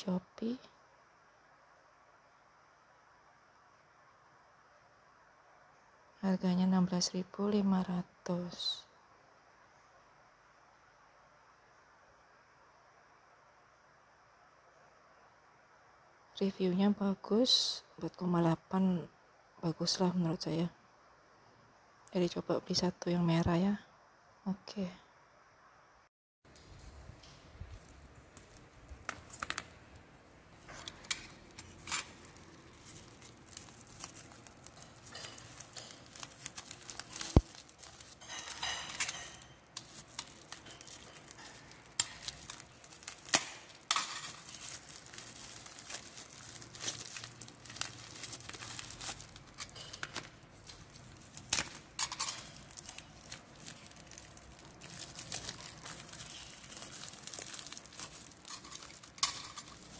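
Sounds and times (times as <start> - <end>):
plastic bag crinkling: 27.5 - 59.9.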